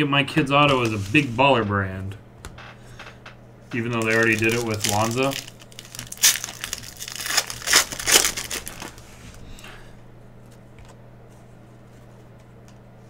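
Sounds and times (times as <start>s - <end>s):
cards ticking: 3.7s - 9.0s
foil wrapper crinkling: 3.7s - 9.2s.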